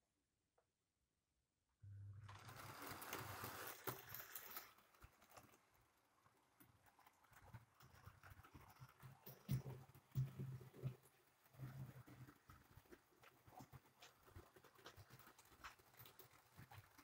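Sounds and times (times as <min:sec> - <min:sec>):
model train wheels clicking on rails: 0:02.3 - 0:10.1.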